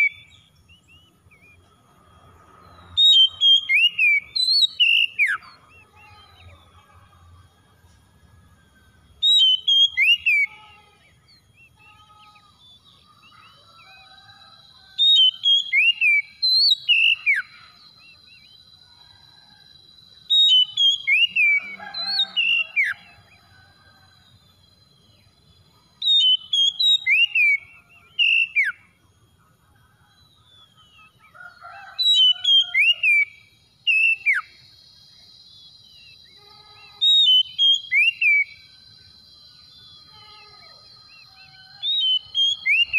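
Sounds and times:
bird whistled song: 0:00.0 - 0:01.7, 0:02.6 - 0:06.8, 0:08.6 - 0:18.8, 0:20.2 - 0:23.4, 0:25.0 - 0:29.4, 0:30.1 - 0:42.9.

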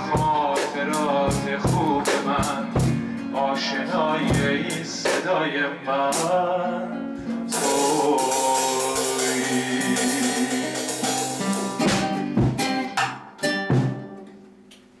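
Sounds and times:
acoustic guitar strumming: 0:00.0 - 0:14.6
held melody line: 0:07.4 - 0:13.0.

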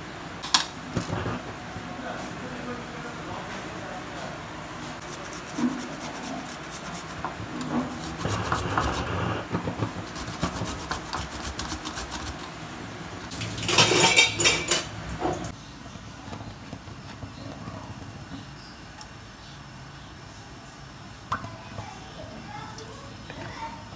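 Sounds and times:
grater rasping: 0:05.0 - 0:12.5.

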